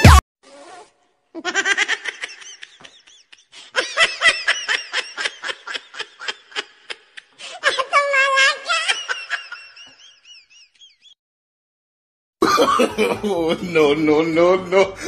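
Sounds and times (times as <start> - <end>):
high-pitched laughter: 1.4 - 11.0.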